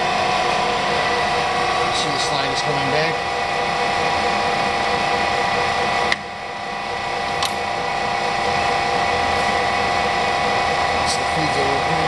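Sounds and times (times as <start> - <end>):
lathe mechanical hum with whine: 0.0 - 12.0
sharp click: 7.4 - 7.6.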